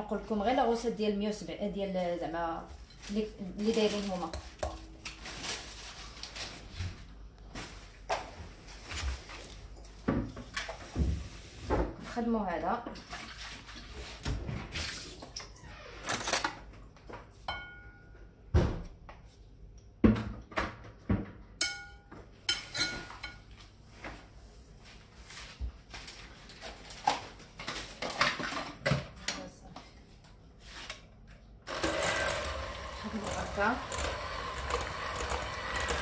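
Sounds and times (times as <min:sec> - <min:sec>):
glass clinking: 0:17.5 - 0:18.1, 0:21.6 - 0:23.4
spatula scraping ceramic bowl: 0:31.9 - 0:36.0.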